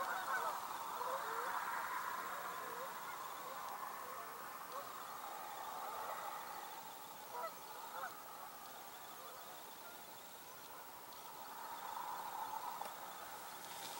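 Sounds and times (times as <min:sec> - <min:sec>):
geese honking: 0:00.0 - 0:06.5, 0:07.2 - 0:08.4
steady background hiss: 0:00.0 - 0:13.9.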